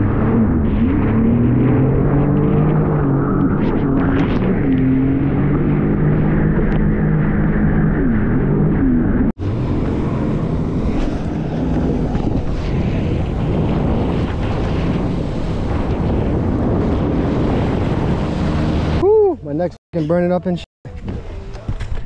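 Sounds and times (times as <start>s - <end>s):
wind noise on microphone: 8.6s - 19.0s
watercraft engine humming: 9.4s - 19.5s.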